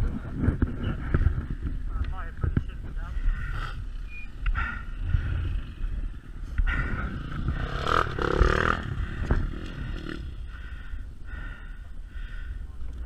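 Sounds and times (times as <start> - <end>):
two-stroke dirt bike engine: 5.0 - 10.4.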